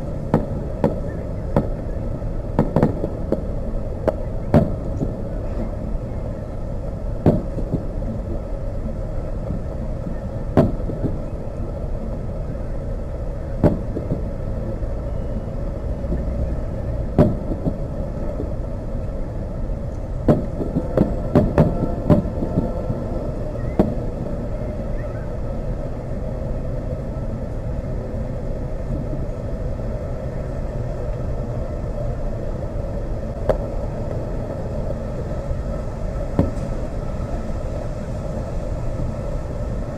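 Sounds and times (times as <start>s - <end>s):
distant fireworks bursting: 0.0s - 19.1s, 20.0s - 25.6s, 33.3s - 37.5s
steady low rumble: 0.0s - 39.9s.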